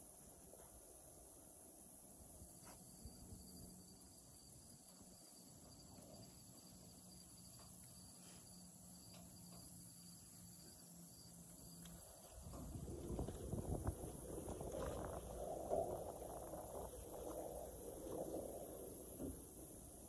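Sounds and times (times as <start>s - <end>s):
insect chirping trill: 0.0s - 20.0s
rustling noise: 12.0s - 19.8s.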